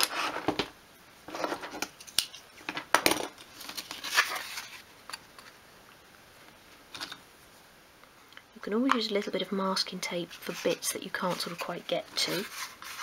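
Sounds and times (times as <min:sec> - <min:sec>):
handling rustles: 0:10.2 - 0:13.0.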